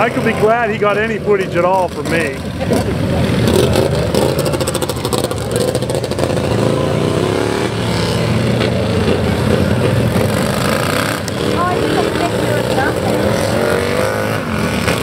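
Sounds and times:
small engines revving: 0:00.0 - 0:15.0.

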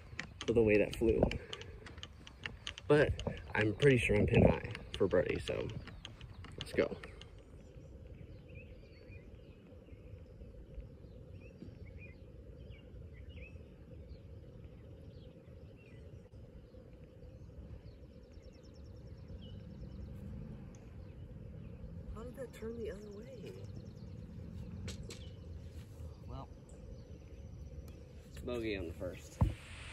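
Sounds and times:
low background rumble: 0:00.0 - 0:29.9
small birds chirping: 0:00.0 - 0:29.9.

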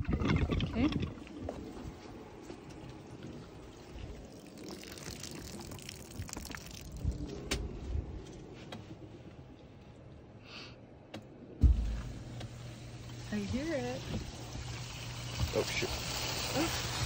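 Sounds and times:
water splashing from spigot: 0:04.2 - 0:07.2, 0:11.6 - 0:17.0.

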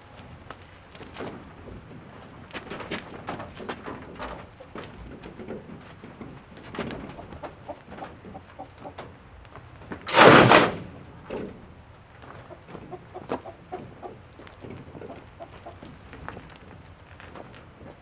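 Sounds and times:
chickens clucking: 0:02.8 - 0:09.2, 0:12.3 - 0:16.0.

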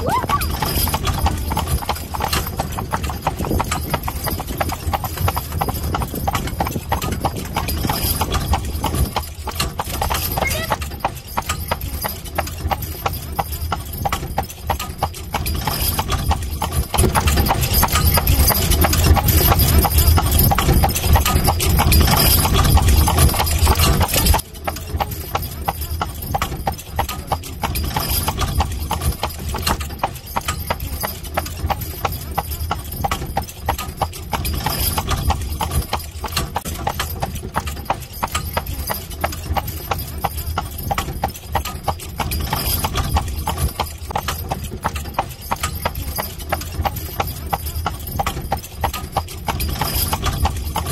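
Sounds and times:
horse hooves clip-clopping: 0:00.0 - 0:50.9.

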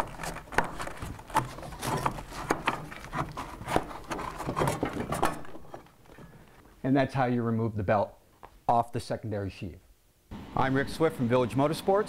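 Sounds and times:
sharp clicks and knocks: 0:00.0 - 0:06.3
rubber belt scraping on metal: 0:00.0 - 0:06.6.

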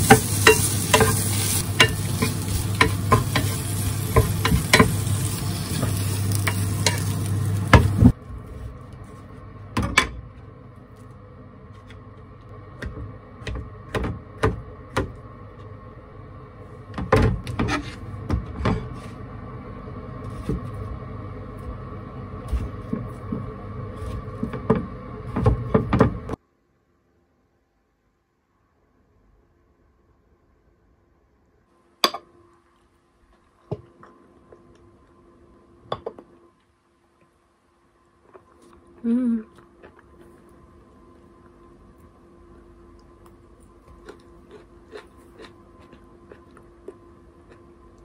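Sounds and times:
vegetables sizzling in frying pan: 0:00.0 - 0:08.2
low hum: 0:00.0 - 0:26.4.

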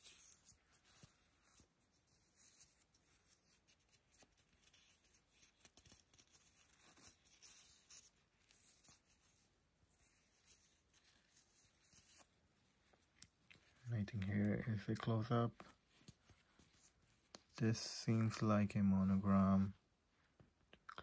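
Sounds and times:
paper tags rustling: 0:10.5 - 0:19.7.

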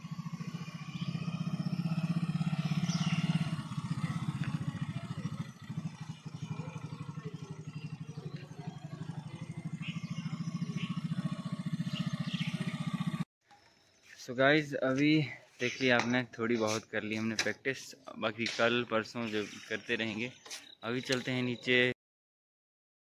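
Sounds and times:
motorcycle engine running: 0:00.0 - 0:13.3.

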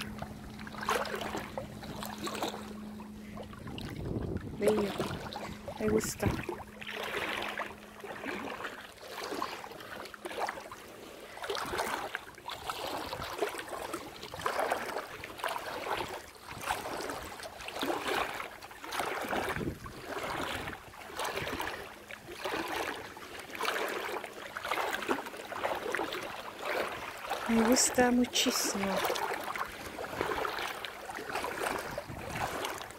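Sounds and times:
legs wading through water: 0:00.0 - 0:32.9.

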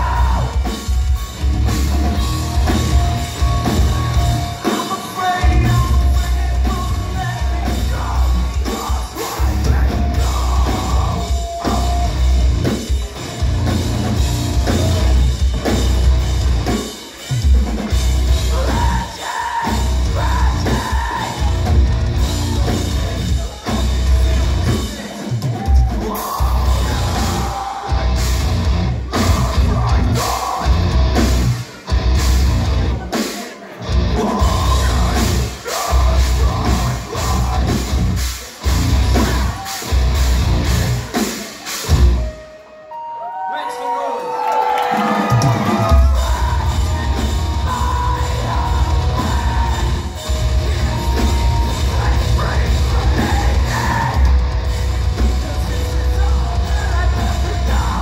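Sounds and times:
metal band playing live: 0:00.0 - 0:58.0
person singing: 0:03.4 - 0:12.8, 0:18.4 - 0:28.2, 0:29.0 - 0:30.9, 0:34.0 - 0:39.8, 0:41.7 - 0:58.0.

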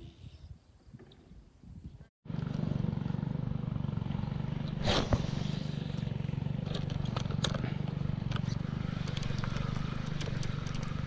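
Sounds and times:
small engine running: 0:02.3 - 0:11.0
short rushing burst: 0:04.7 - 0:06.0.

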